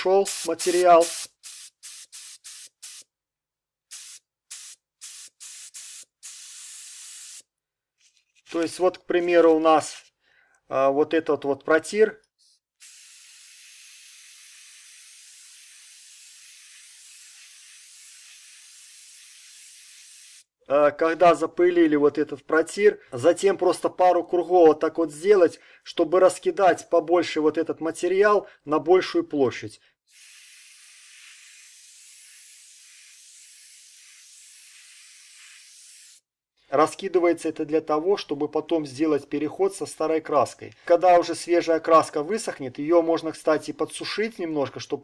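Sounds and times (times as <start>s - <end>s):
paint spray gun hissing: 0.0s - 3.1s, 3.9s - 7.5s, 12.8s - 20.5s, 30.1s - 36.2s.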